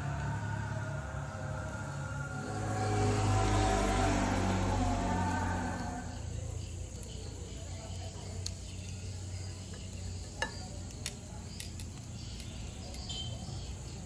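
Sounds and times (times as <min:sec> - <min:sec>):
high insect trilling: 0:00.2 - 0:14.0
metal tongs clicking on grill: 0:07.9 - 0:13.2.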